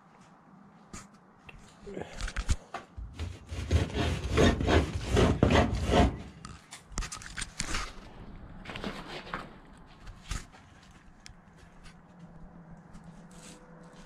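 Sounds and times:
scraping on steel trough: 3.0s - 6.6s.

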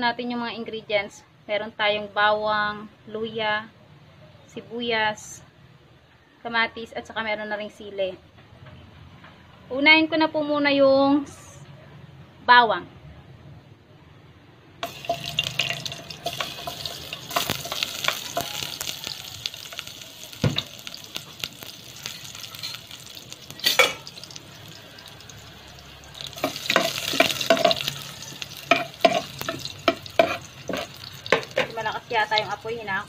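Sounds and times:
metal spatula scraping a pot: 14.8s - 19.9s, 26.2s - 31.8s
garlic sizzling in hot oil: 14.8s - 33.0s.

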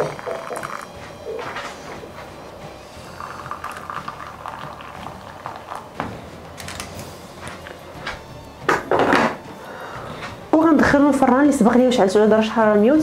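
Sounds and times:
water pouring into a dish: 3.1s - 5.9s.

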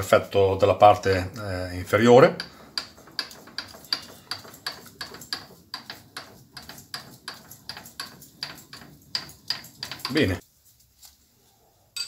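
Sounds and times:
handwheel clicking: 1.8s - 10.4s.

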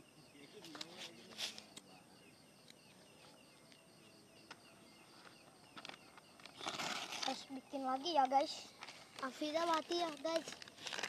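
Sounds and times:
insects chirping: 0.0s - 11.0s
faint clicks and crackles: 5.2s - 11.0s.

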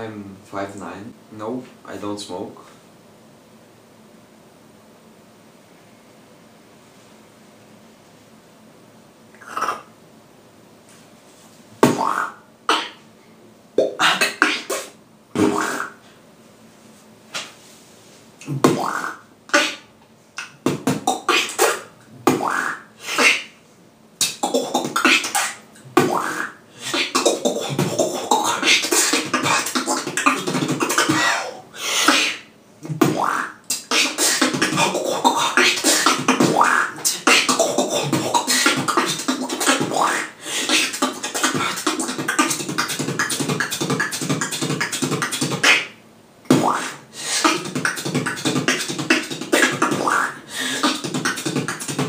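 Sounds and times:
person beatboxing: 9.4s - 9.9s, 11.8s - 13.0s, 13.8s - 16.1s, 18.4s - 23.6s, 24.2s - 52.0s.

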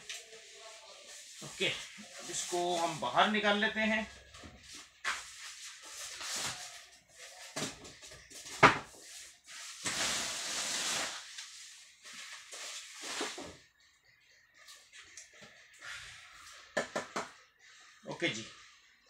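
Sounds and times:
plastic wrap and foam rustling: 0.0s - 13.6s.

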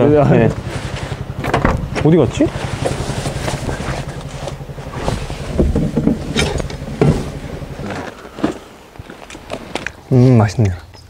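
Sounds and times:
engine idling: 0.0s - 10.1s
knocks and clatter: 0.5s - 8.6s.

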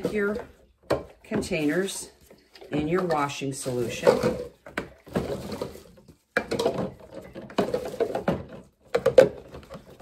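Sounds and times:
plastic knocking against plastic: 4.3s - 10.0s.

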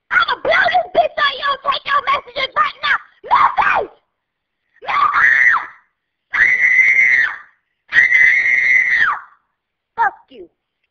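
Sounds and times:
woman screaming high-pitched shrieks: 4.8s - 9.4s.

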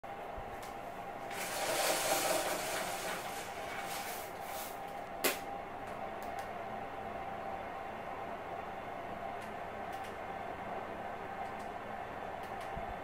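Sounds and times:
roller blind rustling down: 1.2s - 4.9s.

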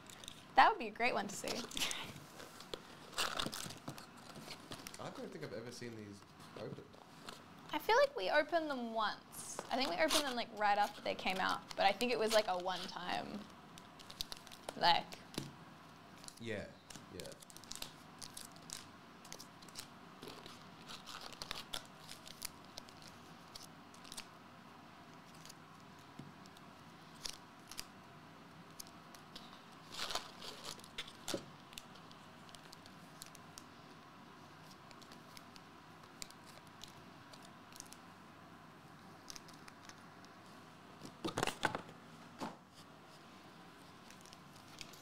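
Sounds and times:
foil wrappers crinkling: 1.4s - 5.3s, 9.6s - 14.8s, 16.2s - 24.3s, 28.7s - 33.7s.

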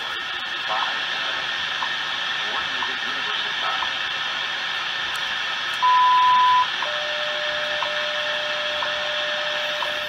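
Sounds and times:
radio static hiss: 0.0s - 10.0s
high beep: 5.8s - 10.0s
time signal ticks: 5.8s - 10.0s.

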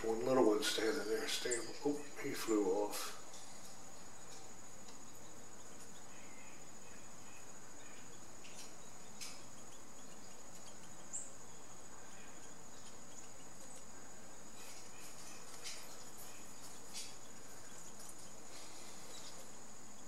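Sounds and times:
insects droning: 0.0s - 20.0s
faint ticks: 3.3s - 6.1s, 8.2s - 11.4s.

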